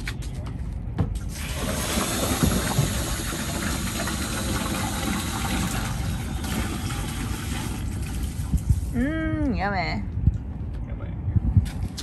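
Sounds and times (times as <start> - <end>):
water gushing: 1.3 - 8.9.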